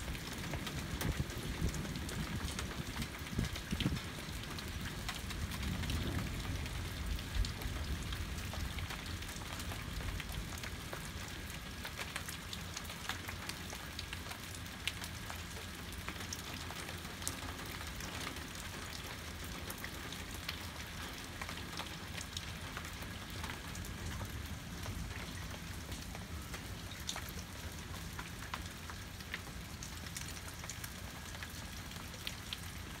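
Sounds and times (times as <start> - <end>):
heavy rain falling: 0.0 - 33.0
low thunder rumble: 5.4 - 8.6.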